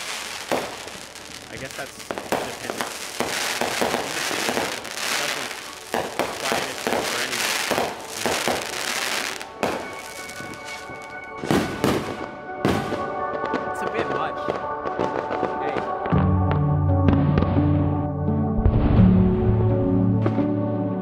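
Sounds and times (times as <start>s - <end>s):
fireworks crackling and banging: 0.0s - 16.1s
music with held tones: 0.0s - 21.0s.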